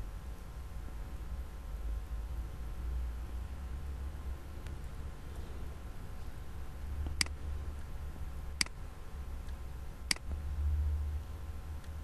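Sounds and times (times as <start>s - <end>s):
low steady hum: 0.0s - 12.0s
computer mouse clicks: 7.0s - 7.9s, 8.6s - 8.8s, 9.4s - 10.4s.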